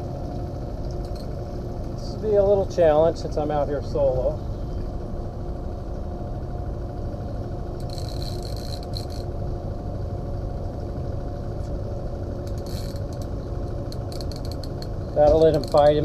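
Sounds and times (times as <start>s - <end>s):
outboard motor running: 0.0s - 16.0s
fishing reel clicker buzzing: 0.9s - 1.4s, 7.8s - 9.3s, 12.4s - 16.0s.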